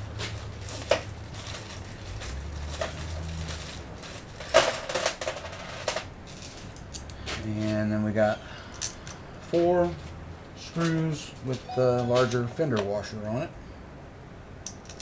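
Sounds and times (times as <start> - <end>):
metal screws clinking: 14.6 - 15.0.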